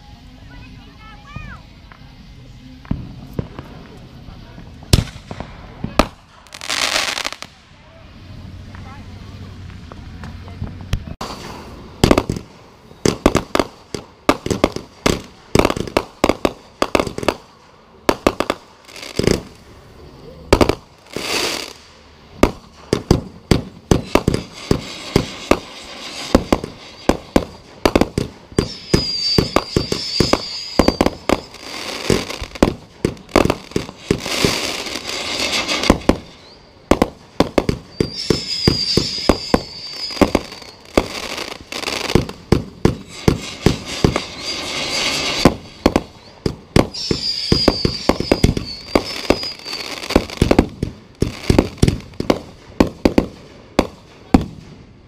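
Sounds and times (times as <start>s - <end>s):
firework crackling: 0.0s - 55.0s
firework bangs: 0.5s - 55.0s
high wavering firework whistle: 18.8s - 52.0s.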